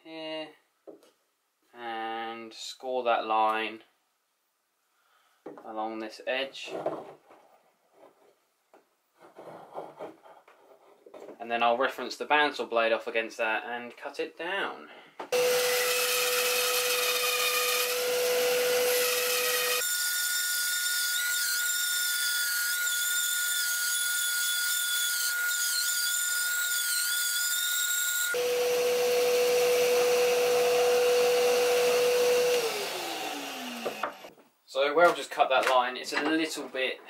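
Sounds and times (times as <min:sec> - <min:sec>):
bandsaw cutting wood: 0:15.4 - 0:34.3.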